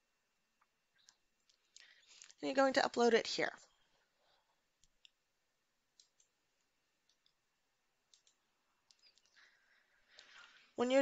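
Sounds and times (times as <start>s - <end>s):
computer mouse clicks: 5.9s - 6.4s, 8.1s - 9.4s.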